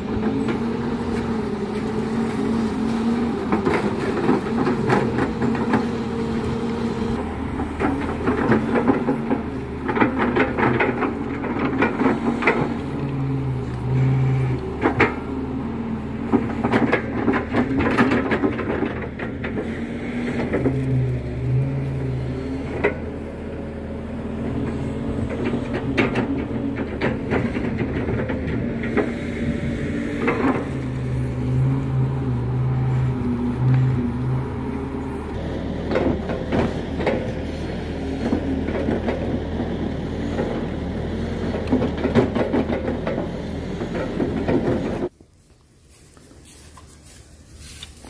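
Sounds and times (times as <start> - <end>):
deeper engine note: 0.0 - 17.5, 19.6 - 41.7
excavator diesel engine running: 0.0 - 45.2
bucket and tracks knocking: 2.9 - 6.8, 7.5 - 13.9, 16.2 - 19.7.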